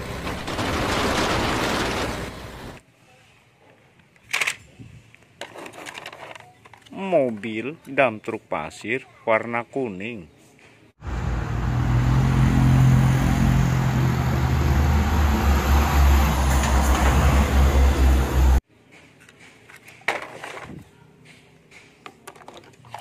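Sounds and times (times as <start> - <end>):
diesel trucks rumbling past: 0.0 - 2.8, 11.0 - 18.6.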